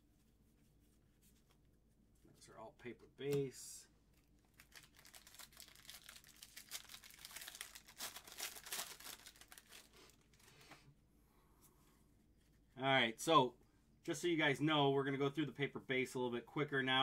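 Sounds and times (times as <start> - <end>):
wrapper crinkling and tearing: 4.2 - 10.6.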